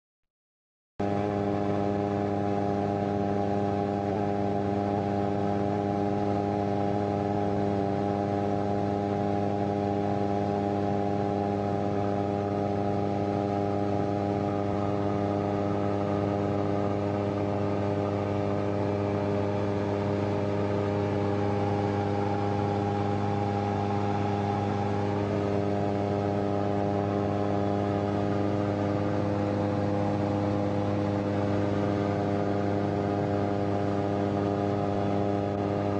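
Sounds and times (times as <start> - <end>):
microlight engine drone: 1.0 - 35.9.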